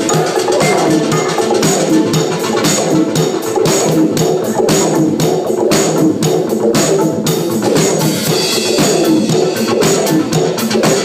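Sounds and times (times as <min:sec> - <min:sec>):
held synthesizer notes: 0:00.0 - 0:02.2
drum kit quick steady beat: 0:00.0 - 0:11.0.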